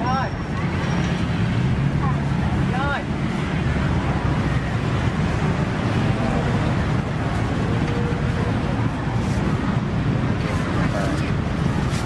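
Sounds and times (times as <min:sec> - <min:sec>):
low street market rumble: 0:00.0 - 0:12.0
faint voices: 0:05.4 - 0:12.0.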